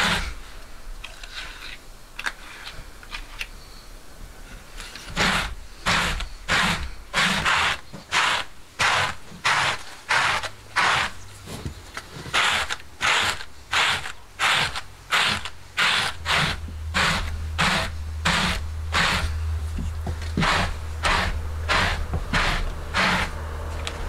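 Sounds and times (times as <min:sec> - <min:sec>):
brush scraping wool blanket: 0:13.9 - 0:23.4.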